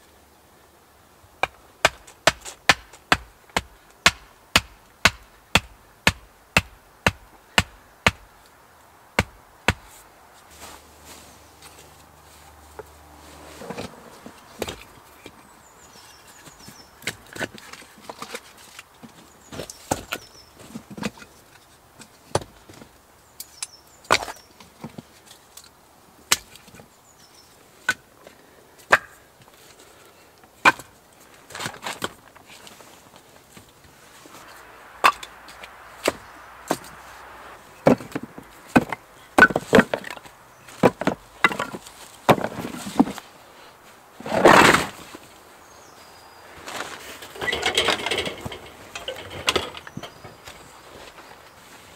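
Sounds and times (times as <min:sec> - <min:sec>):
firewood chopping blows: 0:01.4 - 0:08.3, 0:09.2 - 0:10.0, 0:34.2 - 0:43.2.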